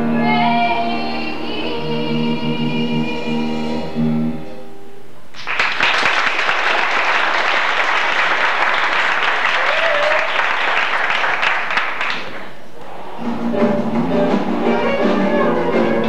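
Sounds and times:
audience applauding: 0:05.4 - 0:12.6.

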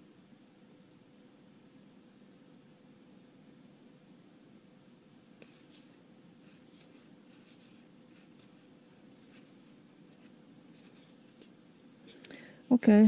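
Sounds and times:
faint steady hum: 0:00.0 - 0:13.0
trading cards swishing: 0:05.4 - 0:12.3.

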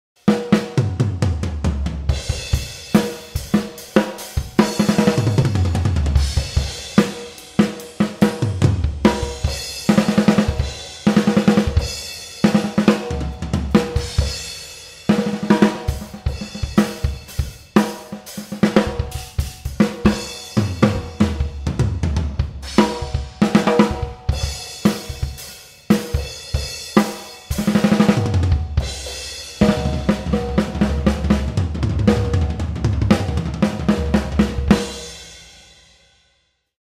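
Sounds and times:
snare drum: 0:00.2 - 0:14.4, 0:15.1 - 0:35.3
bass drum: 0:00.8 - 0:03.6, 0:04.4 - 0:14.6, 0:18.6 - 0:25.4, 0:26.0 - 0:35.3
tom fills: 0:27.6 - 0:35.2.

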